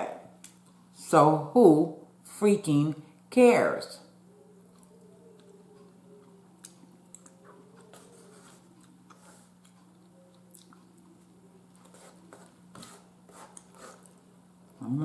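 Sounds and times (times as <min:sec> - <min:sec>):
faint steady hum: 0:00.0 - 0:15.0
quiet chewing: 0:04.2 - 0:14.9.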